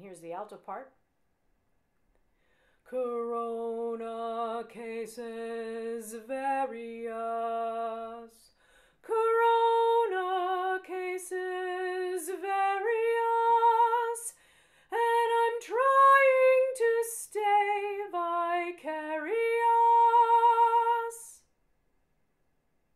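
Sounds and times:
woman singing unaccompanied: 0:02.9 - 0:21.5.

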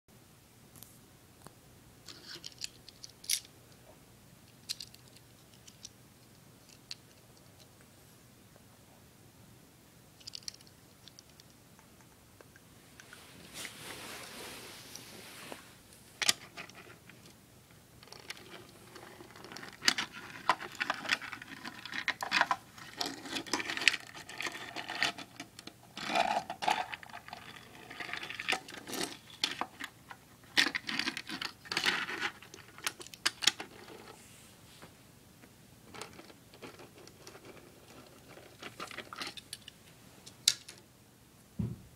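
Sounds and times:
toy car rattling on plastic: 0:18.0 - 0:34.2, 0:35.9 - 0:39.6.

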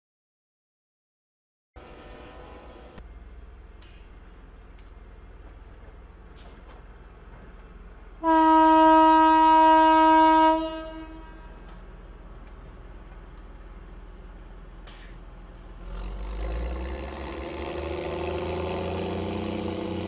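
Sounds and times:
rail car horn blast: 0:01.8 - 0:03.0, 0:08.2 - 0:11.7.

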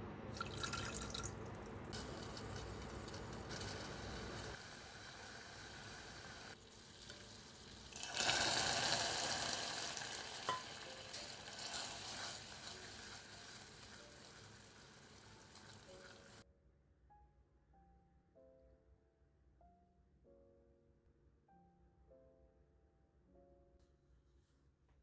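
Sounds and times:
syrup boiling and sizzling: 0:01.9 - 0:16.4.

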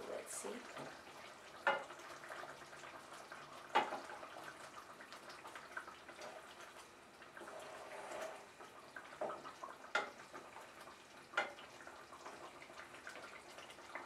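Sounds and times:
gravy bubbling: 0:00.0 - 0:14.0
spatula knocking against pan: 0:01.6 - 0:01.9, 0:09.2 - 0:10.2, 0:11.4 - 0:11.6.

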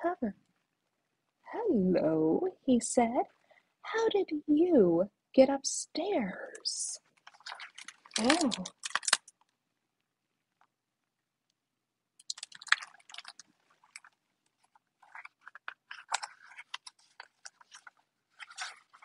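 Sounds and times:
book pages turning: 0:07.0 - 0:09.5, 0:12.2 - 0:19.0.

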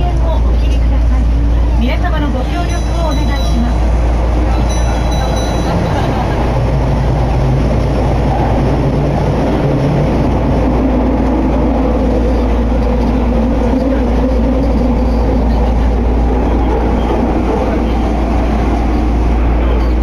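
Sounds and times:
subway train running rumble: 0:00.0 - 0:20.0
higher steady tone: 0:02.3 - 0:06.6.

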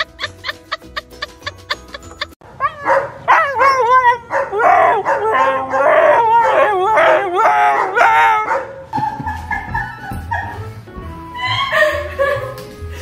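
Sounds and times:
dog howling: 0:02.6 - 0:08.8.

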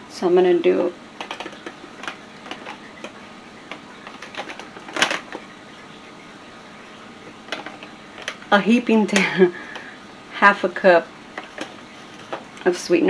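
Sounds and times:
plastic cup scrape: 0:11.4 - 0:12.5.

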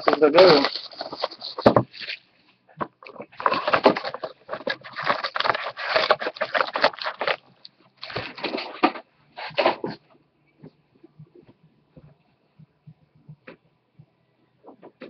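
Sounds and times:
foil packs crinkling and rustling: 0:00.0 - 0:02.2, 0:03.0 - 0:10.0.

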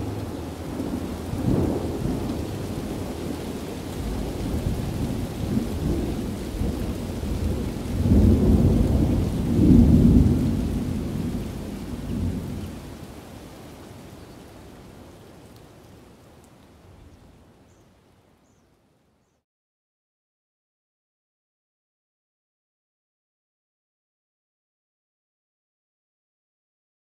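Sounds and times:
thunder rumbling: 0:00.0 - 0:13.2
rain falling: 0:00.0 - 0:19.3.

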